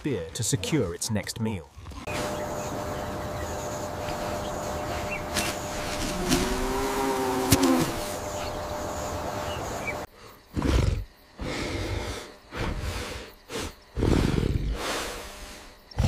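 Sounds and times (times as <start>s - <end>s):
background hiss: 2.1s - 16.0s
boar grunting and snorting: 10.2s - 16.0s.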